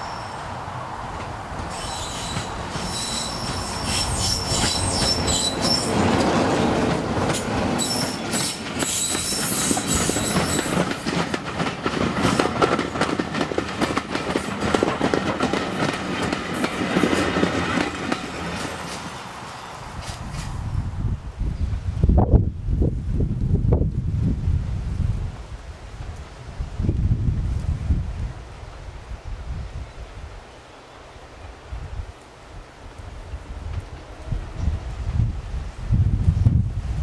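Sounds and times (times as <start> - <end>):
coaches clattering over rail joints: 1.1 - 20.5
wheel squeal: 1.7 - 6.1, 7.8 - 10.8.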